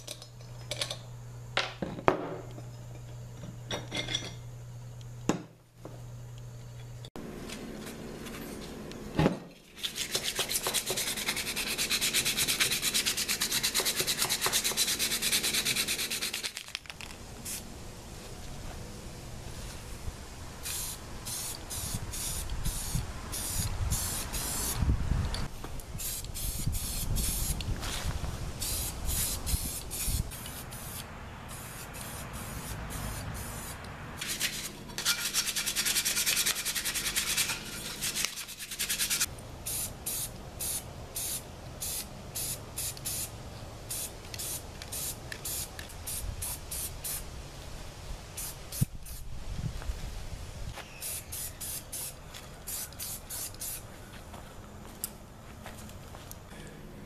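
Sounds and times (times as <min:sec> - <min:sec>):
abrasive rasping on metal rims: 0:34.2 - 0:39.3.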